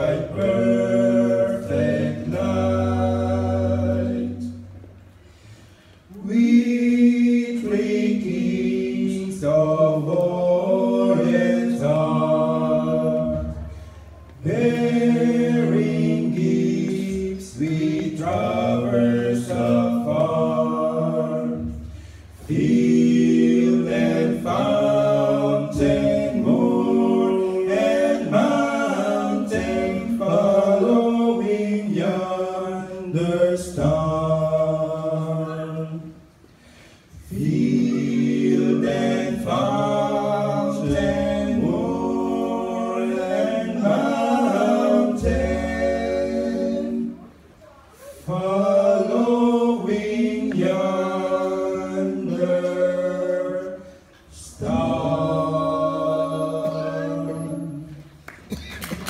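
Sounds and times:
men singing in harmony: 0.0s - 4.7s, 14.4s - 36.1s, 37.2s - 47.2s, 48.3s - 58.0s.

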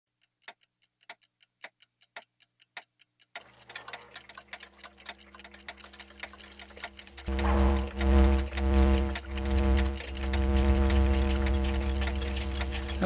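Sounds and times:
clockwork ticking: 0.2s - 13.0s
low steady hum: 4.5s - 13.0s.

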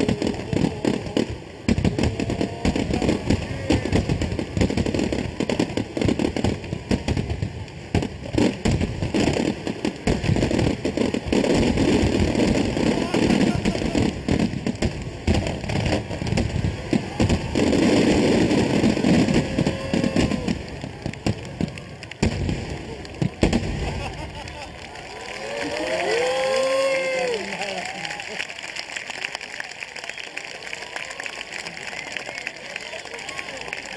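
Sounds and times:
firework booms: 0.0s - 24.5s
firework crackling: 0.0s - 33.9s.

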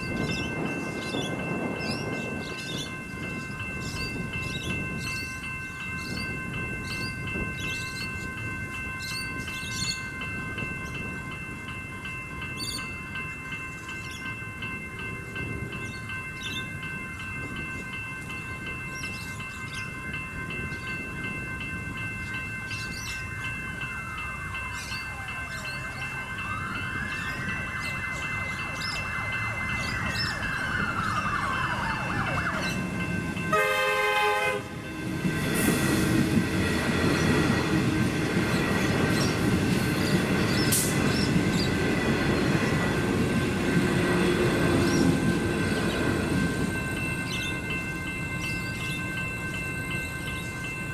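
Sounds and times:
electric train rumbling past: 0.0s - 50.9s
level crossing bells ringing: 0.0s - 50.9s
train horn: 33.5s - 34.9s.

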